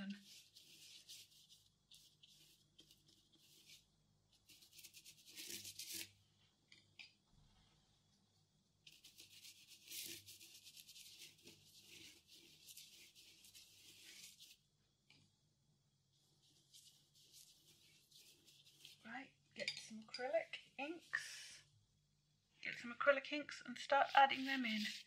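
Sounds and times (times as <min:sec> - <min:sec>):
paintbrush scrubbing paper: 0:00.0 - 0:06.2, 0:08.9 - 0:14.7, 0:16.2 - 0:19.1, 0:23.9 - 0:25.0.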